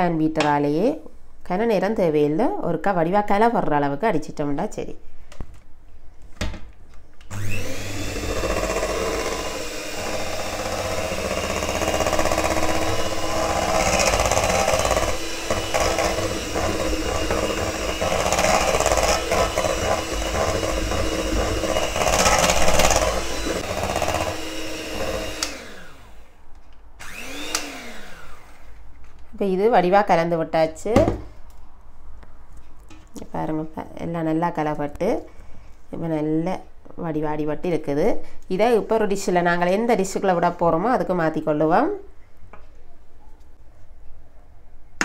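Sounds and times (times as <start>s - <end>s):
electric hand mixer whisking: 7.3s - 26.3s, 27.0s - 28.7s.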